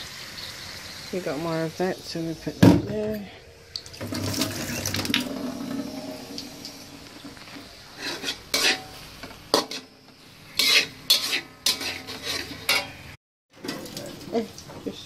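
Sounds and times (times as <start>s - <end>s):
faint sizzle: 0.0s - 15.0s
utensil scraping cooking pan: 4.0s - 14.1s.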